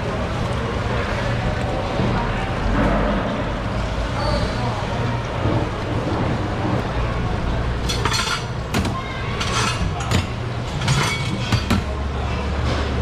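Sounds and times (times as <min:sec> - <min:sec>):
knives clattering on steel counter: 0:07.8 - 0:11.9.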